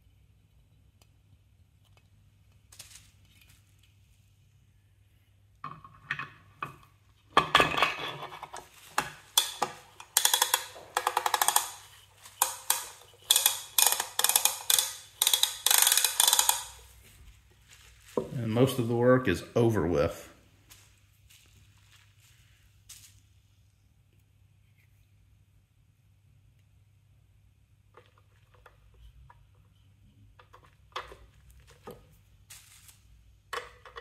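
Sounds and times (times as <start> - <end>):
plastic and metal parts handled: 7.5 - 18.4
sharp ringing clicks and knocks: 9.3 - 16.8.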